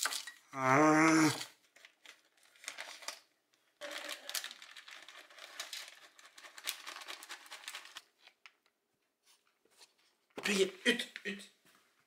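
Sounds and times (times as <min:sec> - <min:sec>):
plastic bag crinkling: 0:01.3 - 0:08.6.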